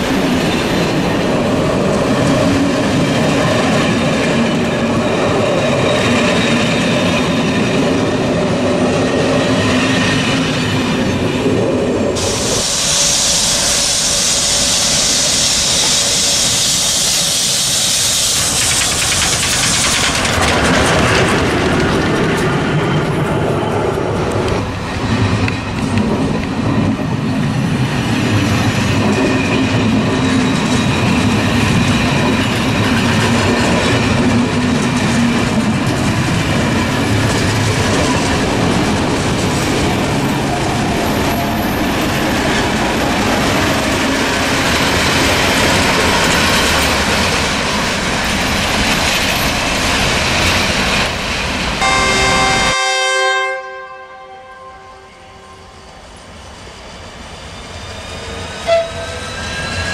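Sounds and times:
train wheels rumbling on rails: 0.0 - 53.2
train horn: 51.8 - 56.0, 58.6 - 59.2.

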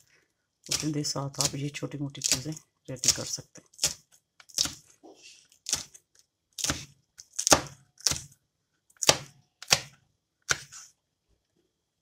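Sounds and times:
knife chopping on plastic board: 0.7 - 1.6, 2.2 - 4.8, 5.6 - 6.0, 6.6 - 8.4, 9.0 - 10.8.

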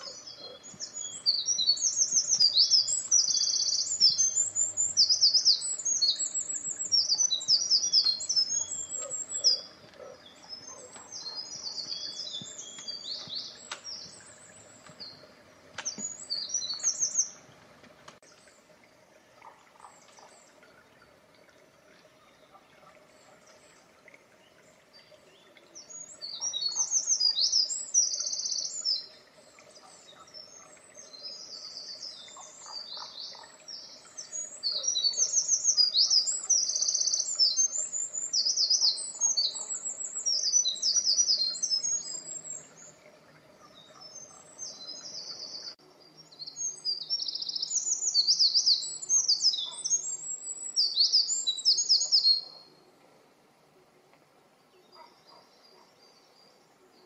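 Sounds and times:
wren singing rapid trills: 0.0 - 14.4, 34.3 - 42.8.

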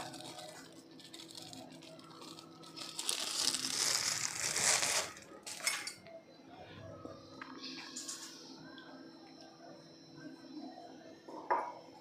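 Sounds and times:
plastic bag crinkling: 0.0 - 5.8.

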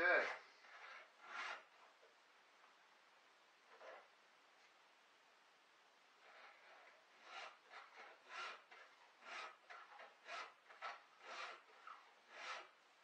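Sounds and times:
hand file rasping on chainsaw chain: 0.1 - 1.7, 6.4 - 12.7.

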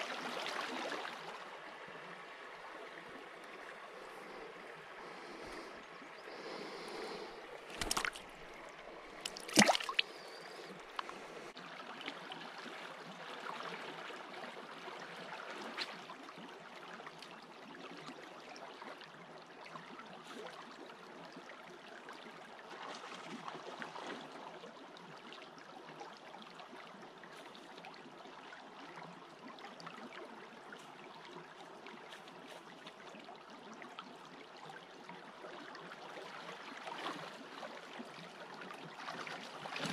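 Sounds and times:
creek water running: 0.0 - 39.9.

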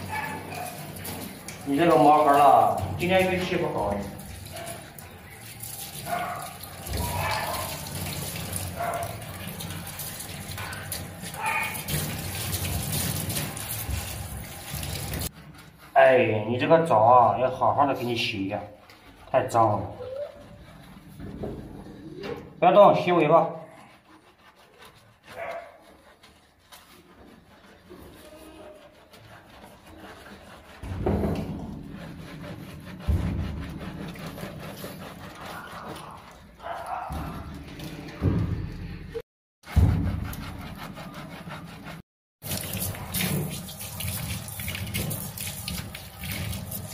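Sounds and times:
shower spray on wet fur: 0.0 - 15.3, 42.4 - 46.9
hands scrubbing wet fur: 0.0 - 38.2, 39.7 - 46.9.

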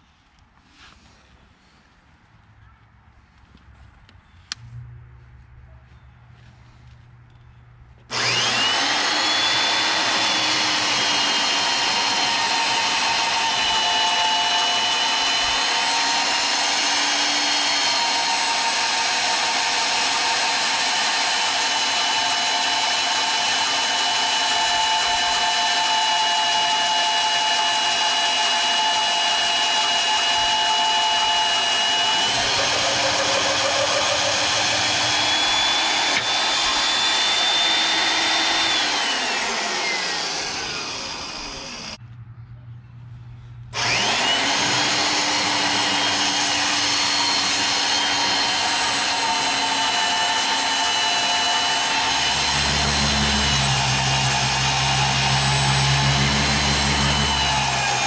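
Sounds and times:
high motor whine: 6.9 - 42.1, 43.7 - 58.0
magnetic drill boring into steel: 8.1 - 42.0, 43.8 - 58.0.

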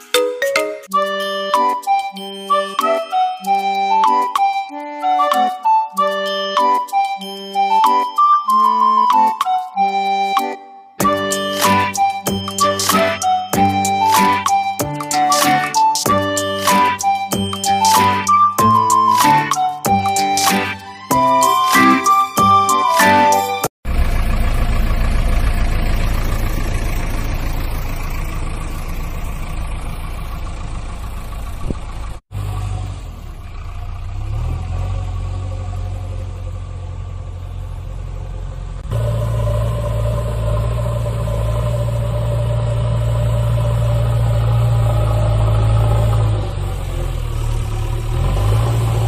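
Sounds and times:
heavy digger engine running: 11.0 - 21.6, 22.8 - 49.0.

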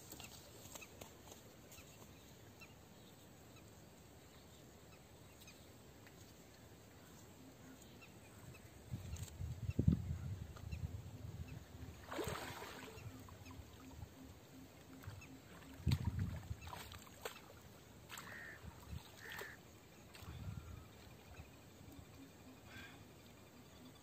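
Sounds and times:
fish splashing out of water: 12.0 - 13.0.

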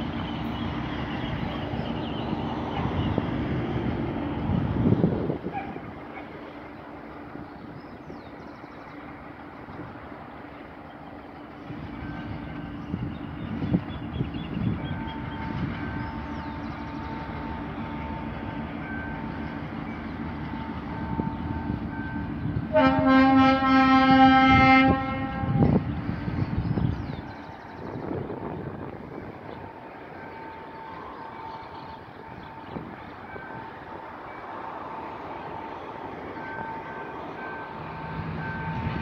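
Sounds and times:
diesel locomotive engine drone: 0.0 - 39.0
locomotive horn blast: 20.6 - 25.9.

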